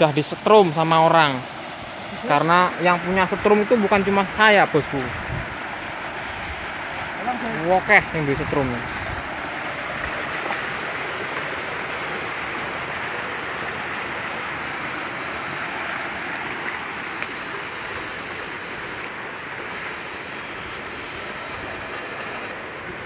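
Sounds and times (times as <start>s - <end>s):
water rushing through a channel: 0.0s - 23.0s.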